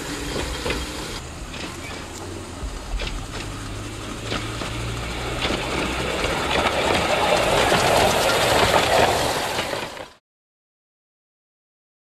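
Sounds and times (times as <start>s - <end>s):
model train rolling rumble: 0.0s - 10.2s.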